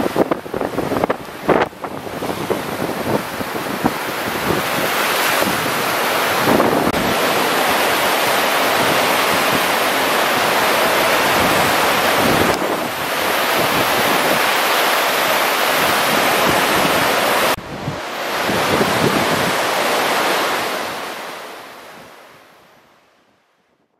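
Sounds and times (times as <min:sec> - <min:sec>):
wind buffeting microphone: 0:00.0 - 0:21.0
river floodwater roaring: 0:00.0 - 0:23.1.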